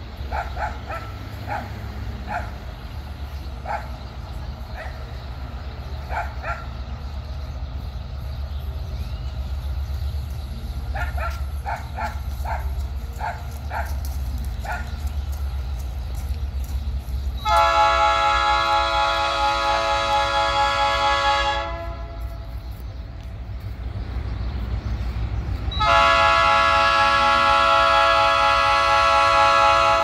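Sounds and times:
freight train rumbling: 0.0 - 30.0
dog barking: 0.3 - 2.6, 3.6 - 4.0, 4.7 - 5.1, 6.1 - 6.8, 10.9 - 14.0, 14.6 - 15.0
locomotive air horn chord: 17.4 - 22.5, 25.8 - 30.0.

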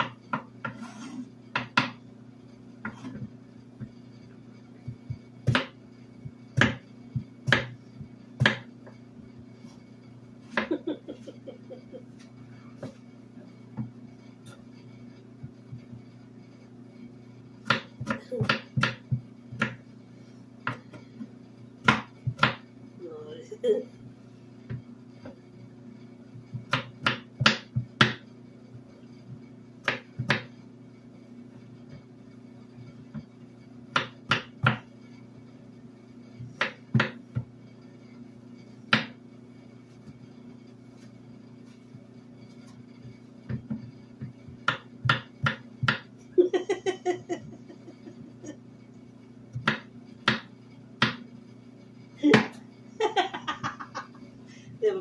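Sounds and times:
knife chopping on cutting board: 0.0 - 2.0, 4.9 - 7.8, 8.4 - 8.7, 17.6 - 19.8, 20.6 - 21.0, 21.8 - 22.7, 26.5 - 28.2, 29.8 - 30.5, 33.9 - 34.9, 36.5 - 37.5, 38.9 - 39.2, 43.5 - 46.1, 49.5 - 51.2.

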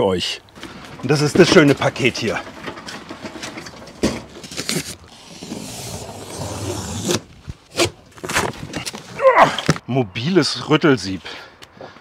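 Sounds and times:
cardboard scraping and rustling: 0.6 - 9.8.

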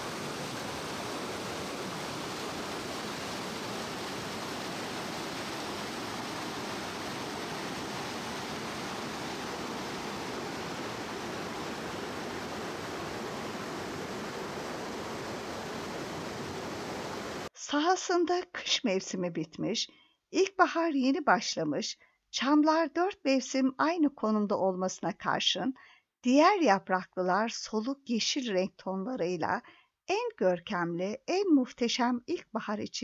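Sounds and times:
stream rushing and babbling: 0.0 - 17.5.

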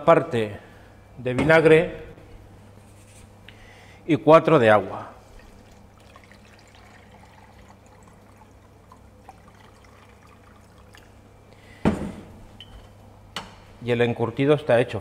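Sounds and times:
water trickling into a jug: 5.2 - 11.4.

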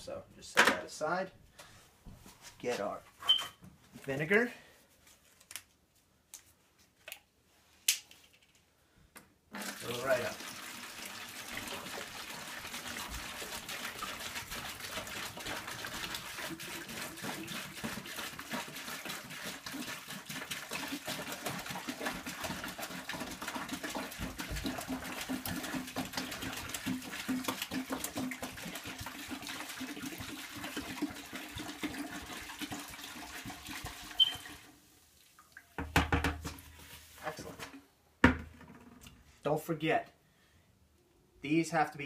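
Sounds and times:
liquid pouring into plastic bucket: 9.5 - 36.9.

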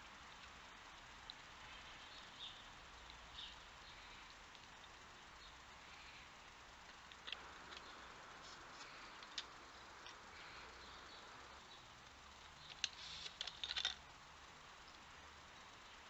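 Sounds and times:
faint hiss: 0.0 - 16.0
fox foraging clicks and crackles: 0.2 - 15.5.

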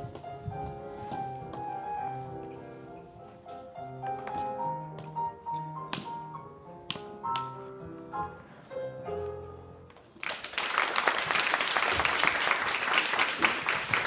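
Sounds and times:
piano music: 0.0 - 10.2
audience applause: 10.2 - 14.0.

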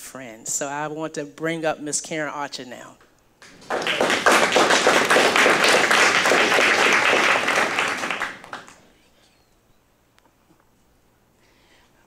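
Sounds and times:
audience applauding: 3.4 - 8.9.

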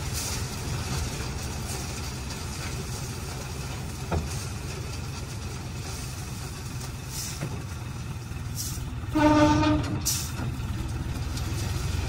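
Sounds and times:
thresher rumbling: 0.0 - 12.0
short horn toot: 9.1 - 10.3.

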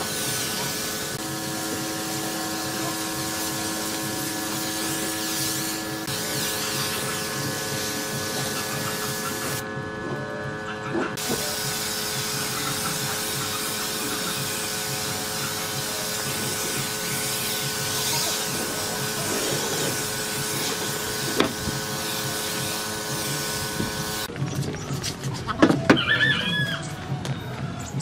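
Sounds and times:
spray gun hissing: 0.0 - 9.6, 11.2 - 24.3
electric motor hum: 0.0 - 24.4.

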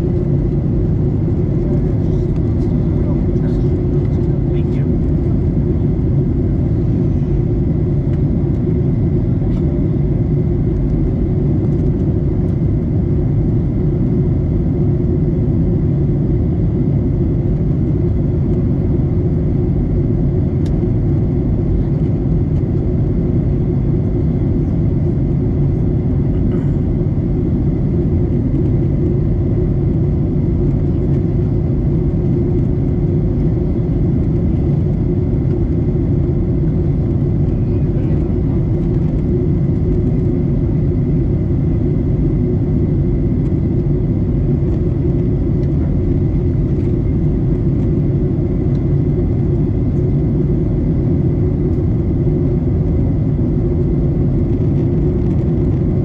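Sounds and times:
jet engine rumble: 0.0 - 56.0.

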